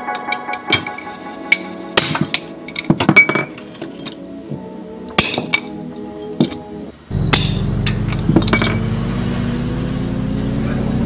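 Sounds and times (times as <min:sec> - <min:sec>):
background music: 0:00.0 - 0:09.8
metal tools clinking on metal: 0:00.1 - 0:04.3, 0:05.1 - 0:09.0.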